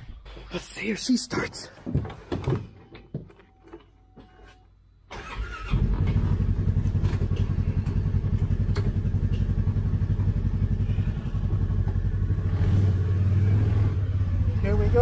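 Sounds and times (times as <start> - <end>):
engine cranking and starting: 5.1 - 13.0
engine idling: 5.1 - 15.0.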